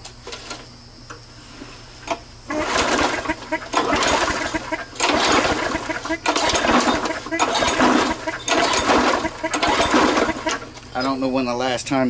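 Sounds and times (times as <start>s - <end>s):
mower engine recoil starter pulls: 2.5s - 11.2s.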